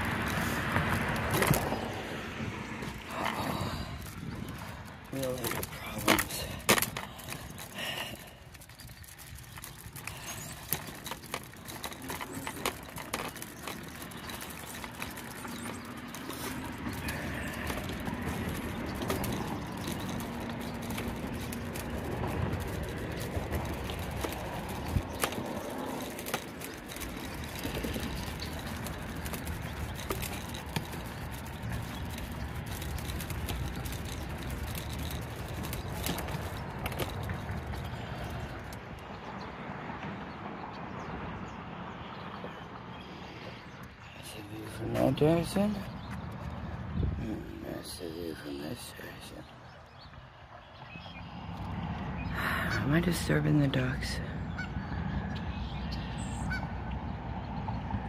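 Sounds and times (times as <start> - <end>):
footsteps on wooden boards: 0.0 - 2.1
footsteps on paved path: 0.0 - 48.5
steady outdoor rush: 0.0 - 58.0.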